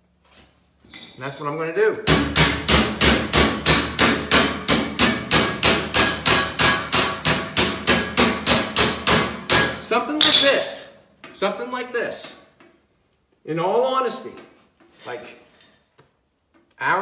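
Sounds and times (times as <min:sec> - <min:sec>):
hammering sheet metal: 0:02.1 - 0:09.9.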